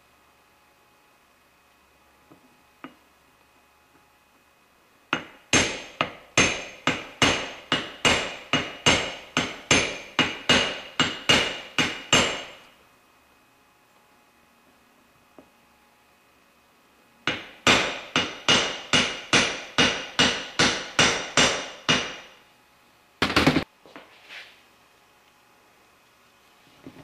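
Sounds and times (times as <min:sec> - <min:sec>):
hammer striking metal: 0:05.2 - 0:12.6, 0:17.3 - 0:22.4.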